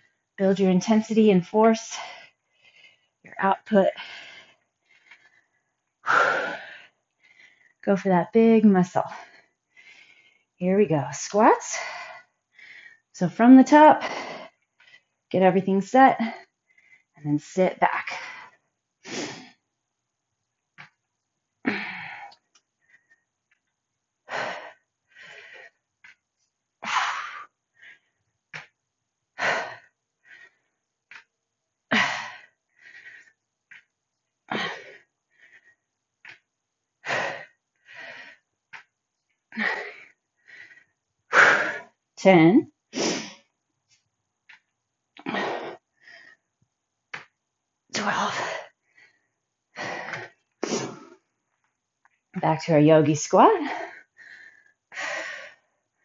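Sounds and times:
woman breathing heavily: 0.0 - 0.4, 1.3 - 7.9, 8.5 - 10.6, 11.4 - 15.4, 16.1 - 17.2, 18.0 - 19.7, 21.6 - 42.2, 44.5 - 46.6, 47.9 - 51.5, 53.4 - 56.0.

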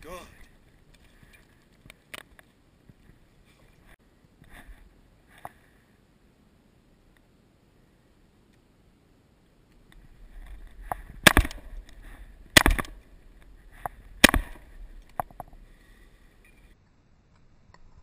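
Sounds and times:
faint sharp cracks: 9.7 - 15.6
shotgun shots with echo: 11.2 - 11.7, 12.5 - 13.0, 14.2 - 14.7.

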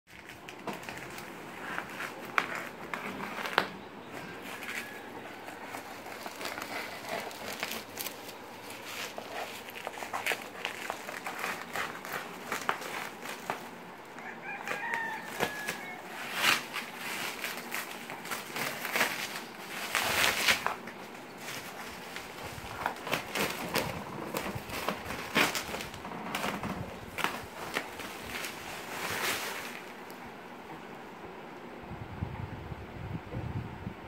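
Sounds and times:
plastic wrap crinkling: 0.1 - 30.6.

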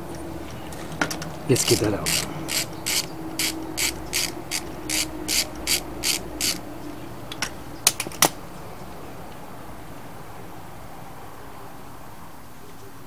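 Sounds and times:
sharp metallic clicks: 1.0 - 6.6
ratchet wrench clicking: 1.6 - 6.6.

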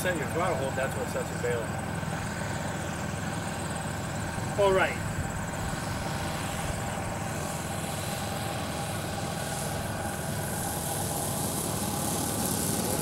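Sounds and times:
model plane engines droning: 0.0 - 13.0.

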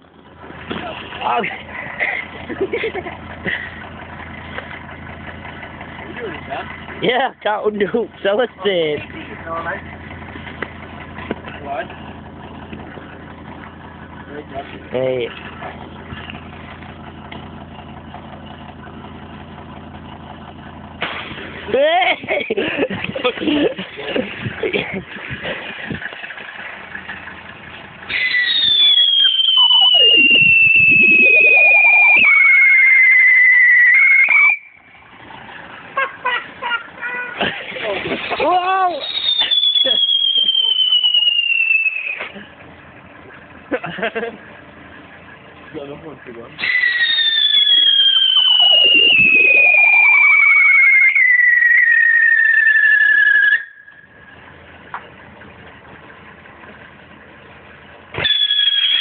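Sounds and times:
firework whistling: 28.1 - 35.0, 38.2 - 42.4, 46.6 - 54.3, 58.2 - 59.0.

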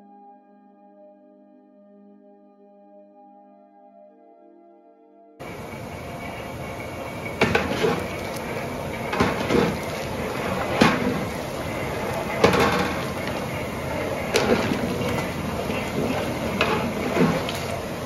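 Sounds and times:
ladle stirring thick stew: 5.4 - 18.0
ladle knocking against pot: 7.3 - 17.8.

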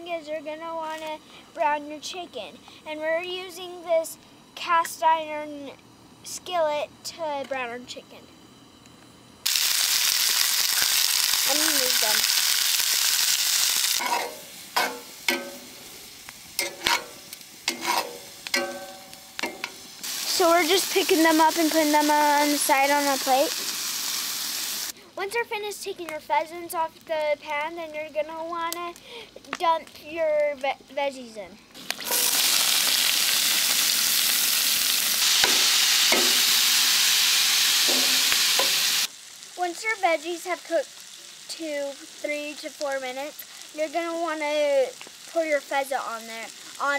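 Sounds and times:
meat sizzling in oil: 9.4 - 25.0, 31.8 - 46.9
metal tongs clinking on skillet: 14.0 - 15.6, 16.6 - 19.9, 35.4 - 36.6, 37.9 - 38.9.

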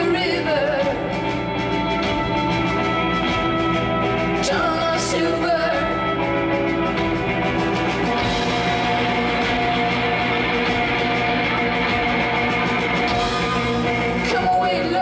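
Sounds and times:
woman singing: 0.0 - 2.8, 4.0 - 6.8, 13.1 - 15.0
live rock band playing: 0.0 - 15.0.

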